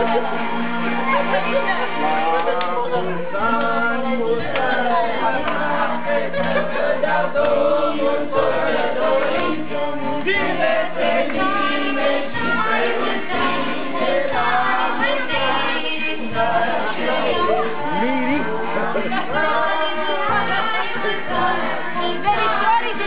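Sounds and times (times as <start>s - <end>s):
group singing a celebration song: 0.0s - 23.0s.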